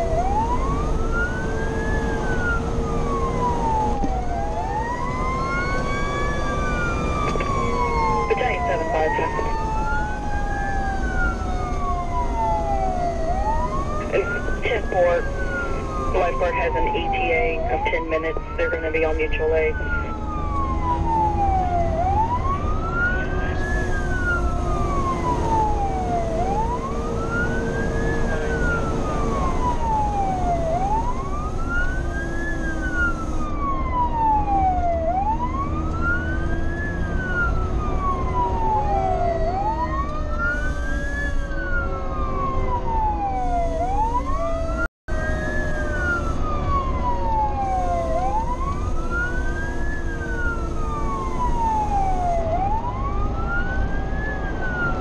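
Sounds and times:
truck engine rumble: 0.0s - 41.1s
fire engine siren wailing: 0.0s - 55.0s
lower siren tone winding down: 0.0s - 55.0s
road noise: 0.0s - 55.0s.

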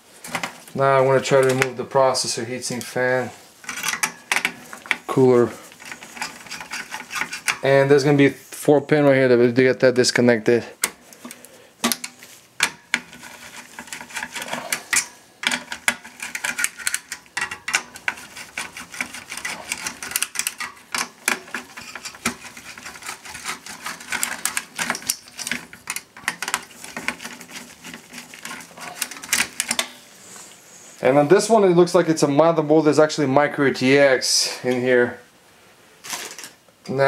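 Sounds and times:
heatsink handled in metal case: 3.6s - 5.0s, 5.7s - 7.6s, 10.8s - 30.0s.

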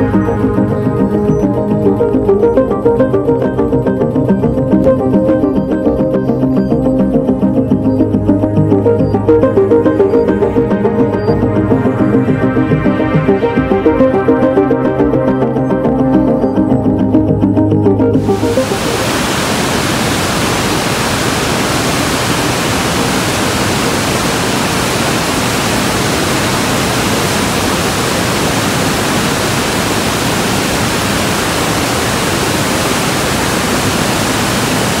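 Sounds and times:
waterfall roaring: 18.2s - 35.0s.

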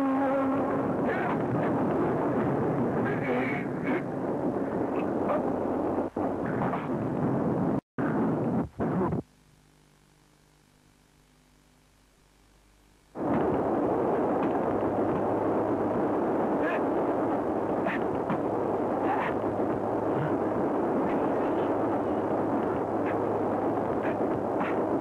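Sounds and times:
faint hum: 0.0s - 25.0s
train running noise: 17.6s - 25.0s.

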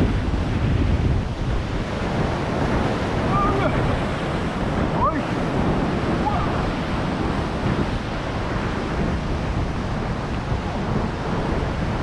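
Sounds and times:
ocean surf washing against rocks: 0.0s - 12.0s
wind buffeting microphone: 0.0s - 12.0s.

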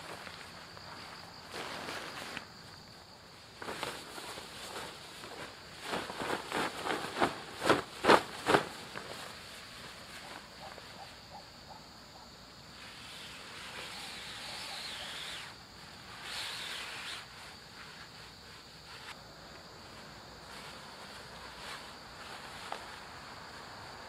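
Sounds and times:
fabric swishing and flapping: 3.6s - 10.7s
fabric sleeve sliding swish: 16.2s - 19.2s.

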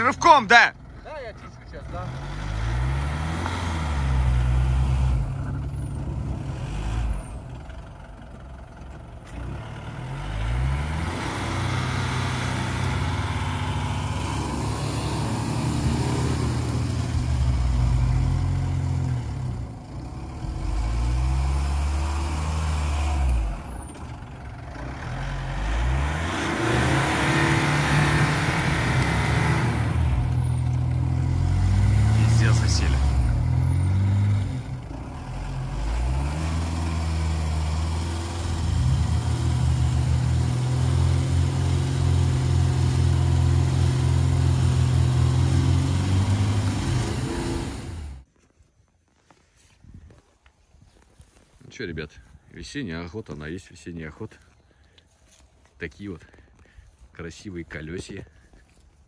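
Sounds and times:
engines revving hard: 1.7s - 7.8s, 9.3s - 48.2s.

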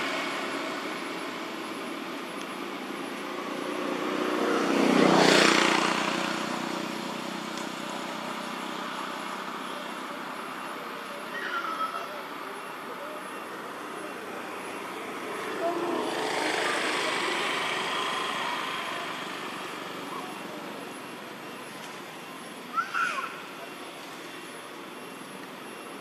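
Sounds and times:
vehicle passing by: 3.2s - 9.2s, 13.6s - 21.6s.

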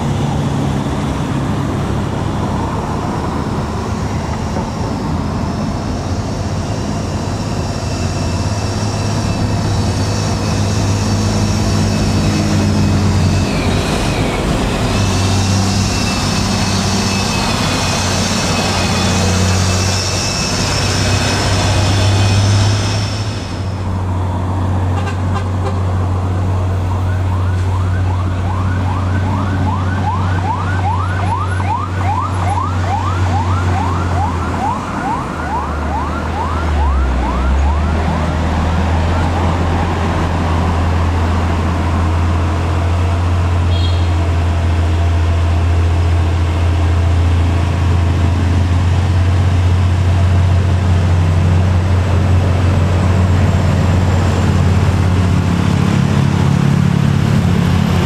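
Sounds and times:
diesel truck engines droning: 0.0s - 58.0s
siren-like rising whoop: 26.2s - 42.2s.

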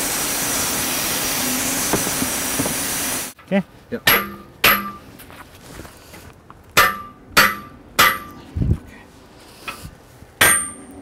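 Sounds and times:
hammer striking metal: 4.0s - 5.1s, 6.8s - 8.4s, 10.4s - 11.0s.

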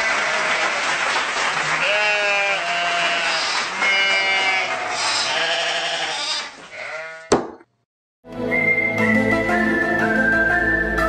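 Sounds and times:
audience applause: 0.0s - 4.9s.

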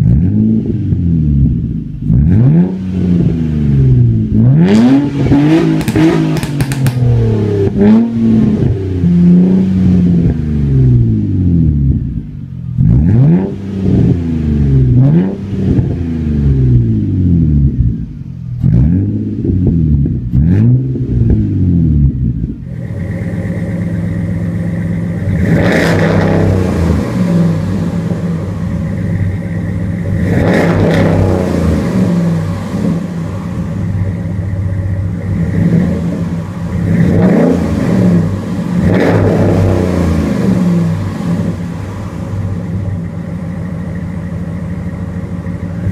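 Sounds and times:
car engine revving: 0.0s - 45.9s
pickup truck engine running: 21.2s - 45.9s.

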